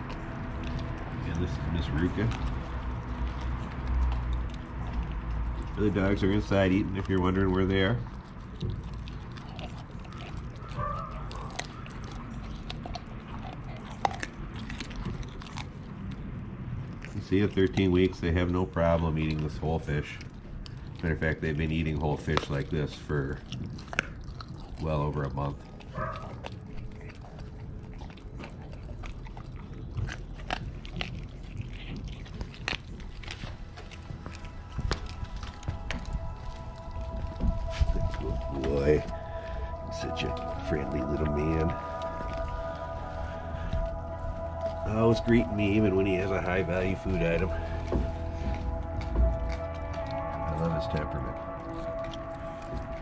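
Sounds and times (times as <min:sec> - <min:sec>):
teeth clicking: 0:00.0 - 0:40.3
puppy chewing raw fish: 0:00.0 - 0:53.0.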